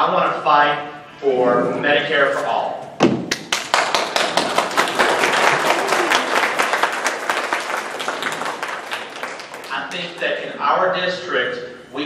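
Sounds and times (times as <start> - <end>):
audience applauding: 3.3 - 10.2.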